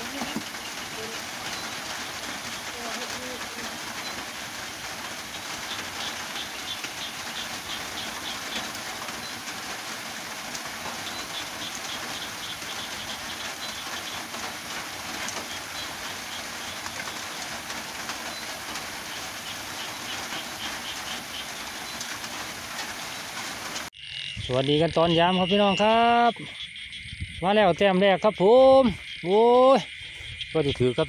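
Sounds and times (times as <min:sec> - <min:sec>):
steady rain falling: 0:00.0 - 0:23.9.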